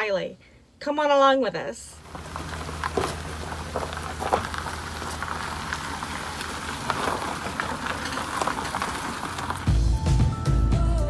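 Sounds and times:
gravel crunching: 0:02.0 - 0:10.5
vehicle engine humming: 0:02.0 - 0:10.7.

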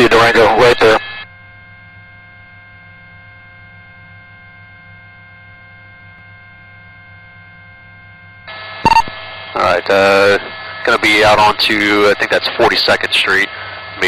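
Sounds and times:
radio channel noise burst: 0:00.0 - 0:01.2, 0:08.5 - 0:14.0
low electrical hum: 0:00.0 - 0:14.0
radio transmission click: 0:08.8 - 0:09.2.

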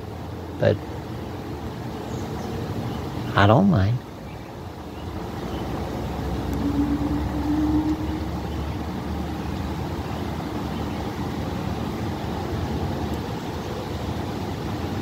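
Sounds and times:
distant thunder rumbling: 0:05.6 - 0:09.9.

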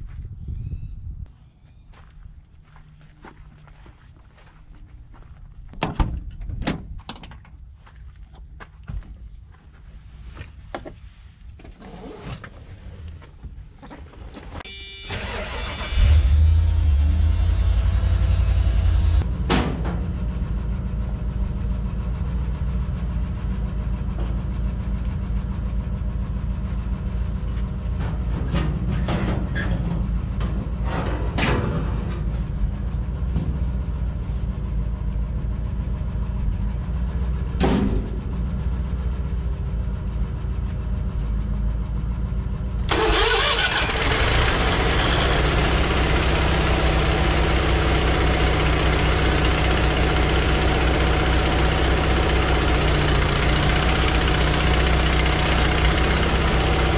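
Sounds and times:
hissy machine sound: 0:14.7 - 0:19.2
engine idling: 0:14.7 - 0:31.0, 0:32.0 - 0:56.9.

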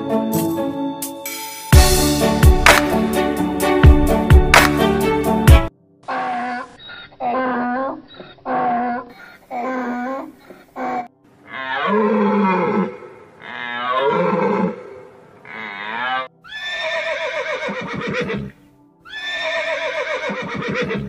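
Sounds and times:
horse whinnying: 0:11.5 - 0:21.0.

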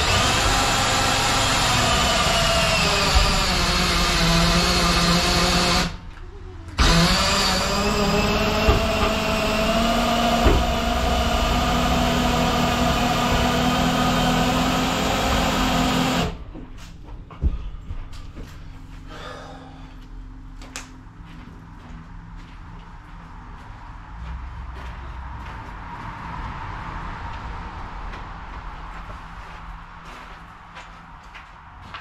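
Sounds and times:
electric drill running: 0:00.0 - 0:06.0, 0:06.8 - 0:16.4.

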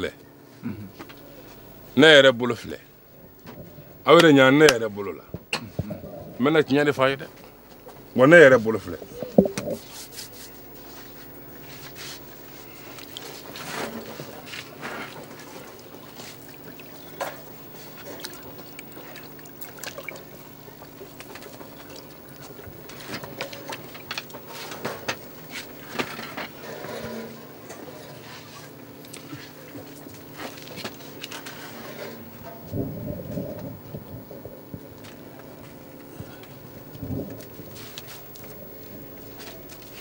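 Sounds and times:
steady low hum: 0:00.0 - 0:40.0
water sloshing in a clay pot: 0:08.7 - 0:09.9, 0:12.6 - 0:24.7.

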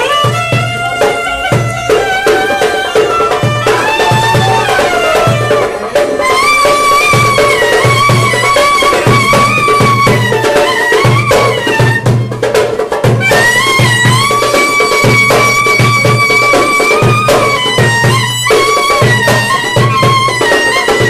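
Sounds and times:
low drum beat: 0:00.0 - 0:16.3
clarinet melody: 0:00.0 - 0:21.0
violin: 0:00.0 - 0:21.0.

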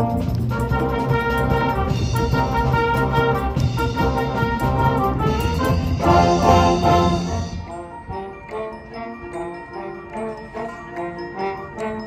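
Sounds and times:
loud brass: 0:00.0 - 0:09.2
mallet percussion ringing: 0:00.0 - 0:12.0
wind band playing: 0:00.0 - 0:12.0.

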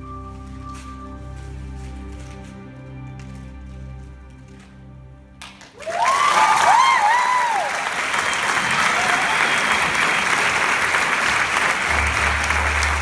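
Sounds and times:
audience applauding: 0:05.4 - 0:13.0
high whooping cheers: 0:05.8 - 0:10.9.

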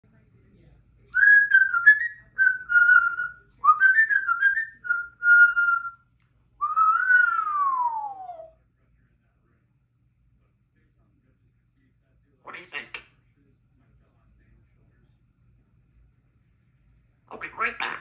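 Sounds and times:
parrot whistling: 0:01.2 - 0:06.0, 0:06.6 - 0:08.5.

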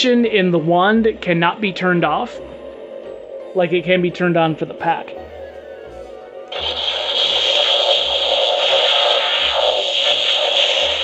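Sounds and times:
low pulsing electronic hum: 0:00.2 - 0:11.0
loud hissing blast: 0:06.5 - 0:11.0.

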